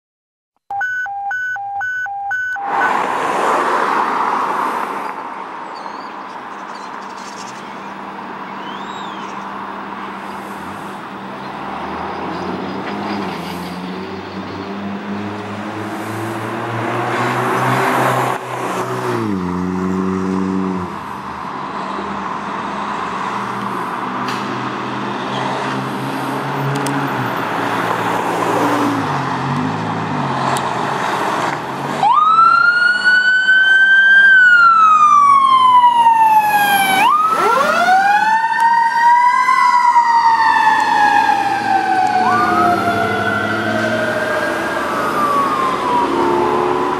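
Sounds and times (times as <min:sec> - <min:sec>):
mechanical siren wailing: 0:32.0 - 0:46.9.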